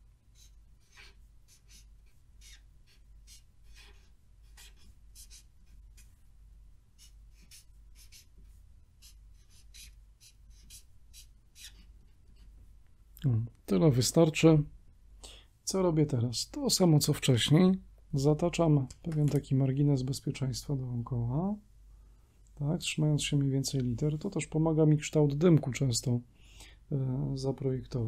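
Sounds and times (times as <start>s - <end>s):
faint low hum: 0.0s - 28.0s
marker drawing on paper: 0.3s - 6.2s, 7.0s - 12.6s.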